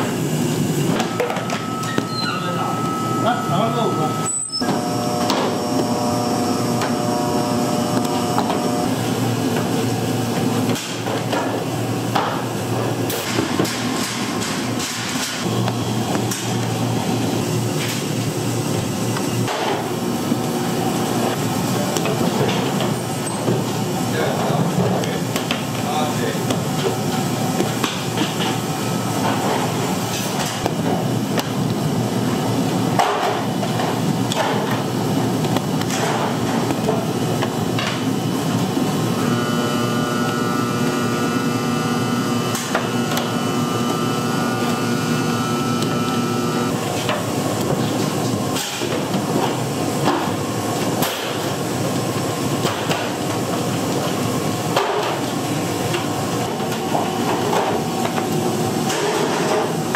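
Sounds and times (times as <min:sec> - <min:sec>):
machine noise: 0:00.0 - 0:53.5
steady machine tone: 0:00.8 - 0:10.2
tools and trays clattering: 0:58.8 - 0:59.9.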